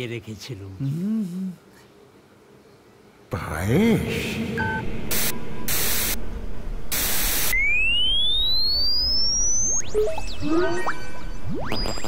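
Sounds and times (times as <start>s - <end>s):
static-like hiss bursts: 4.8s - 9.6s
electronic blips and glides: 6.9s - 12.0s
rising whistle-like tone: 7.3s - 11.3s.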